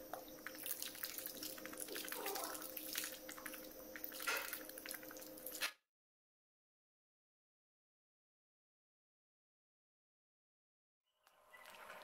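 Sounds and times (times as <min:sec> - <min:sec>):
faint steady hum: 0:00.0 - 0:05.6
syrup wet clicks and drips: 0:00.1 - 0:05.6.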